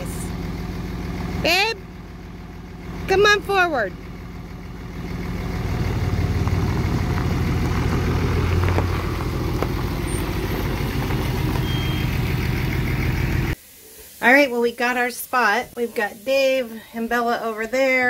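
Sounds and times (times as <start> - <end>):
diesel engine running at low revs: 0.0 - 13.6.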